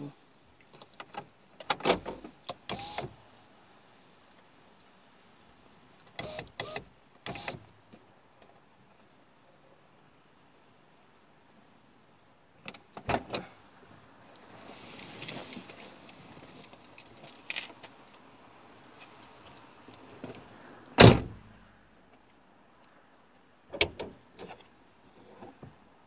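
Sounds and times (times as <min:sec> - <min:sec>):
rustling of someone climbing out: 0:14.4 - 0:18.2
car door shutting with thump: 0:21.0 - 0:21.4.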